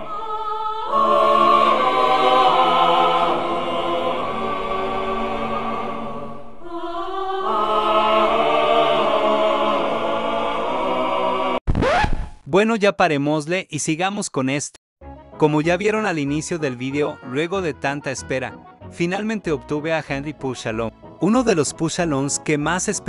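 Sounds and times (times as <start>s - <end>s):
choir singing held chords: 0.0s - 11.6s.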